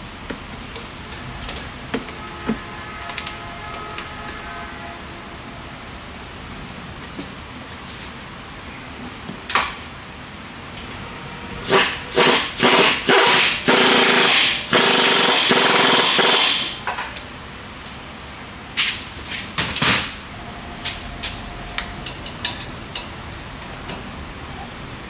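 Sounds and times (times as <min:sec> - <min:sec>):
pneumatic wrench bursts: 0:11.6 - 0:16.8.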